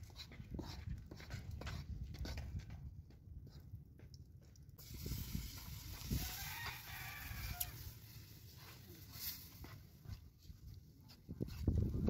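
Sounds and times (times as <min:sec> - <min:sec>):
rooster crowing: 0:06.1 - 0:08.0.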